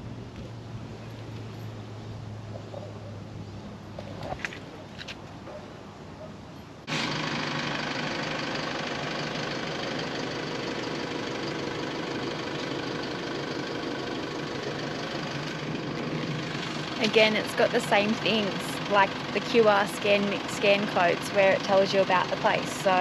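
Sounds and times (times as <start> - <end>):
motor droning: 6.9 - 23.0.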